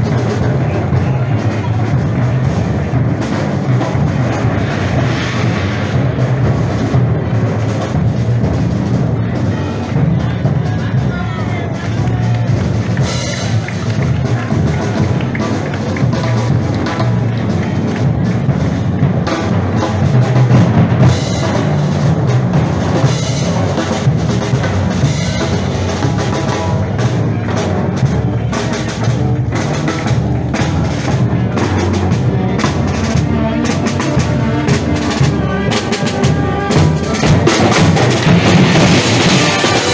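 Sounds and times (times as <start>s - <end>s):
bass drum beating: 0.0s - 39.9s
marching band playing a march: 0.0s - 39.9s
snare drum beating: 22.9s - 39.9s.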